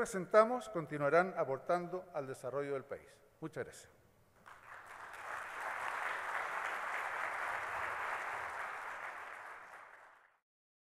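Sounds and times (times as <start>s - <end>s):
audience applauding: 4.4s - 10.4s.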